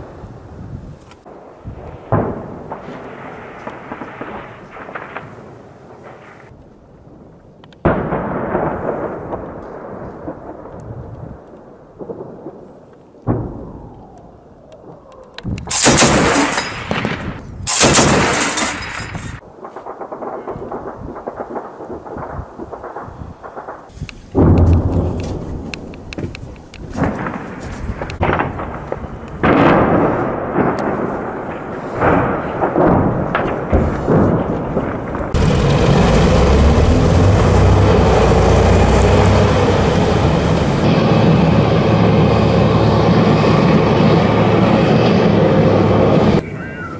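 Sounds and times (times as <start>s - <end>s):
heavy explosions rumbling: 1.3s - 6.5s, 7.1s - 14.2s, 15.5s - 46.6s
gunshot cracks: 15.7s - 21.7s.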